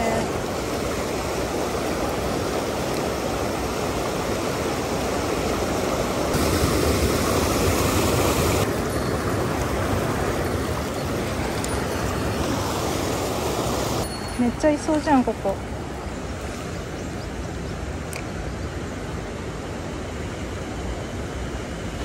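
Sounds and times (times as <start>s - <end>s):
stream rushing over rocks: 0.0s - 16.9s.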